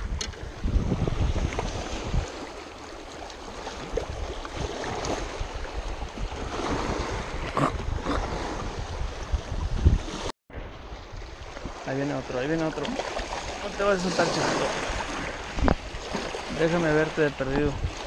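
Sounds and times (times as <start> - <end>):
wind buffeting microphone: 0.0 - 2.8, 3.4 - 18.0
waves washing onto rocky shore: 11.4 - 18.0.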